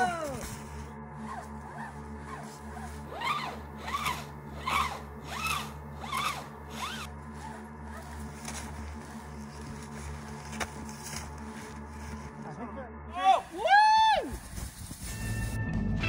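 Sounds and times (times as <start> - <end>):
rope sawing with squeaks: 1.1 - 12.2.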